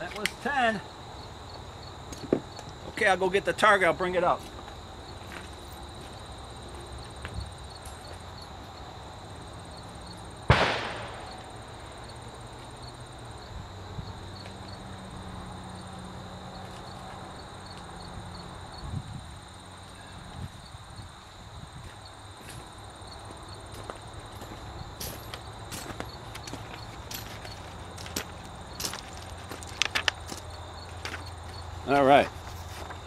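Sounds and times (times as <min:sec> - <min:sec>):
insects chirping: 0:00.0 - 0:33.0
sharp ringing bang: 0:10.5 - 0:11.5.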